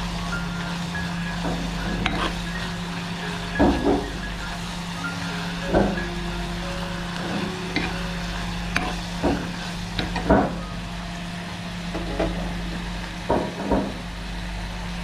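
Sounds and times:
soft sizzle: 0.0s - 15.0s
steady low hum: 0.0s - 15.0s
spoon scraping and knocking in pan: 1.6s - 2.6s.

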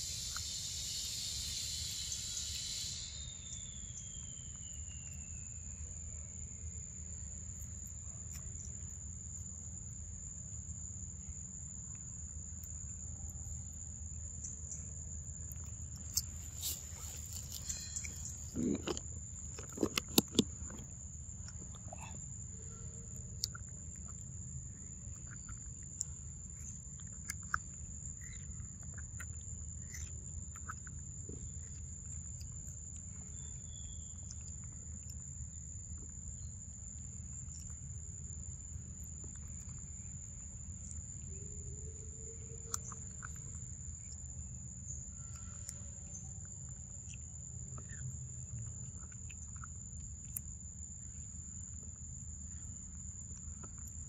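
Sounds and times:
high-pitched insect drone: 0.0s - 6.0s, 16.2s - 19.0s
monkey chewing and lip-smacking: 15.4s - 38.2s, 45.3s - 51.2s.

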